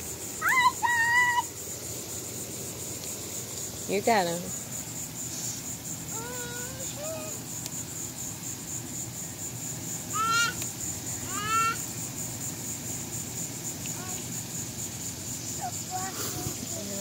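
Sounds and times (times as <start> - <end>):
insects chirring: 0.0 - 17.0.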